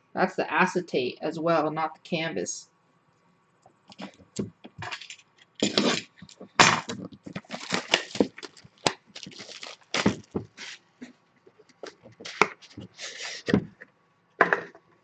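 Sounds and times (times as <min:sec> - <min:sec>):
cardboard boxes rustling and scraping: 0:05.6 - 0:10.8.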